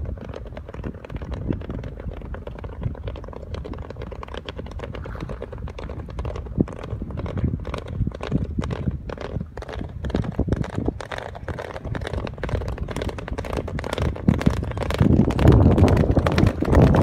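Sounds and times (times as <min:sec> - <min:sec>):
hoofbeats on wet sand: 0:00.0 - 0:17.0
low steady rumble: 0:00.0 - 0:17.0.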